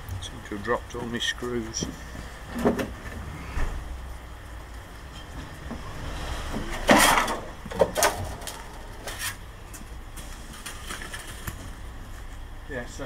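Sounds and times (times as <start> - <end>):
scraping rustle: 5.1 - 12.4.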